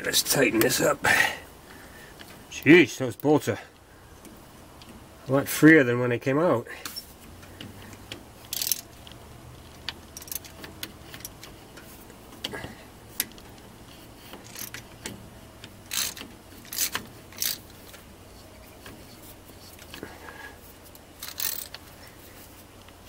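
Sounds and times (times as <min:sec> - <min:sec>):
hand ratchet clicking: 0:06.8 - 0:11.6, 0:13.2 - 0:18.0, 0:20.9 - 0:21.9.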